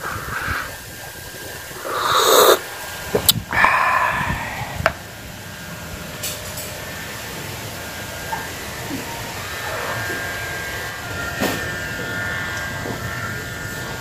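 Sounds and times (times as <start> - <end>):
wind rumbling on microphone: 0.0 - 6.2
high-pitched hum: 0.0 - 14.0.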